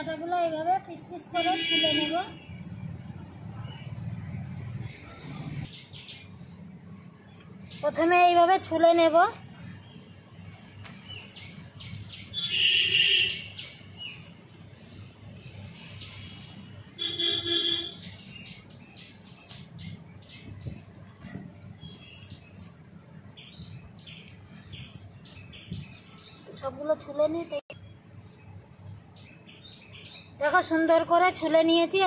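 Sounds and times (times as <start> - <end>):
vehicle horn tooting: 1.4 - 2.3, 17.0 - 18.0
birds chirping: 1.4 - 31.6.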